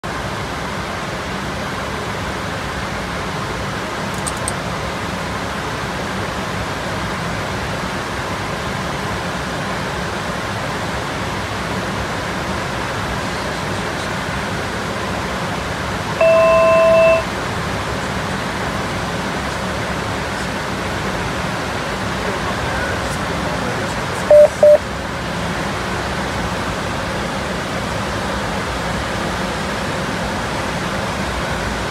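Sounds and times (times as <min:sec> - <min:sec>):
electronic alert tone: 0:16.2 - 0:17.3, 0:24.3 - 0:24.8
rushing cockpit noise: 0:16.2 - 0:17.3, 0:22.1 - 0:24.8.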